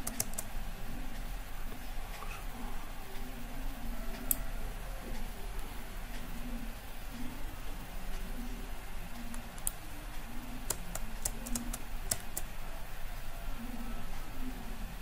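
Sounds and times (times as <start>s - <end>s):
mouse and keyboard clicks: 0.0s - 0.5s, 9.2s - 9.8s, 10.6s - 12.5s
steady low hum: 0.0s - 15.0s.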